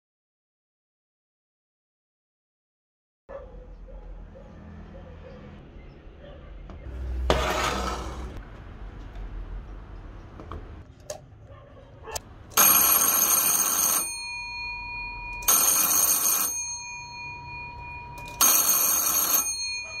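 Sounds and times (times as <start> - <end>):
electric fire bell ringing: 12.6 - 20.0.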